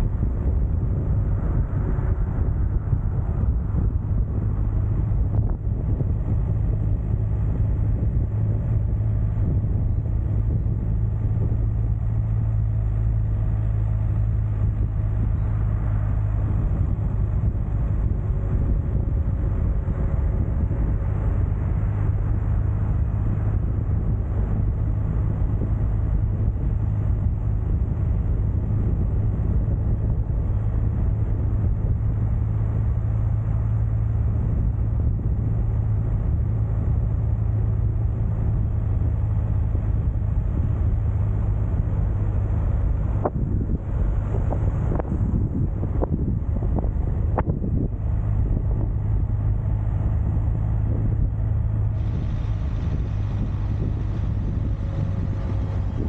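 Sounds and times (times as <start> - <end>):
vehicle engine drone: 0.0 - 56.0
rushing noise: 40.1 - 56.0.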